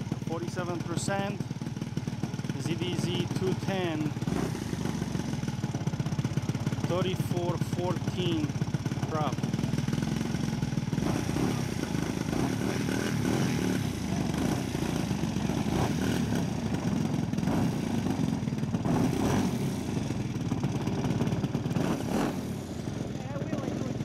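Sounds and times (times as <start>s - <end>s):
model plane engine running: 0.0s - 24.0s.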